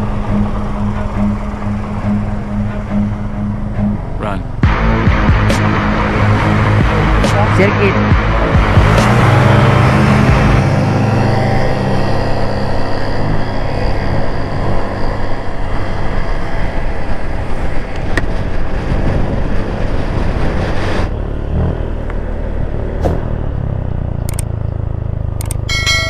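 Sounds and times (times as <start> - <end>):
scooter engine running: 0.0 - 26.0
loud wind noise on microphone: 15.5 - 21.1.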